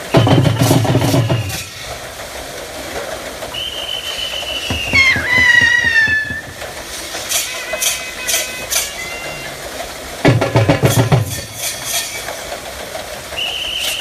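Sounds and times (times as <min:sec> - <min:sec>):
wooden water wheel clattering: 0:00.0 - 0:14.0
long high-pitched whistle: 0:03.6 - 0:06.4, 0:13.4 - 0:14.0.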